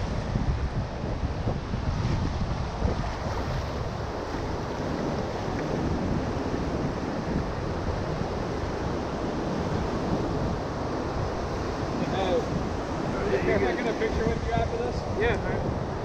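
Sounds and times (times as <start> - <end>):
ocean surf washing up beach: 0.0 - 16.0
wind rumbling on microphone: 0.0 - 16.0.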